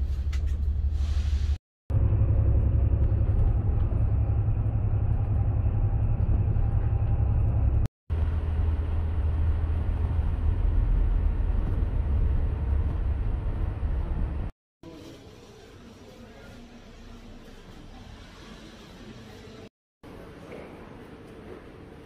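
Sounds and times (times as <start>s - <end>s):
vehicle rumble heard from inside: 0.0s - 14.5s.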